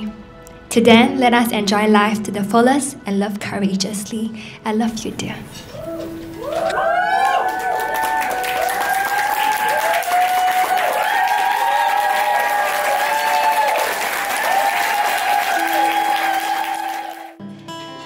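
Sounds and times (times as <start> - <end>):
crowd whooping and cheering: 5.7 - 17.4
crowd clapping: 6.4 - 17.4.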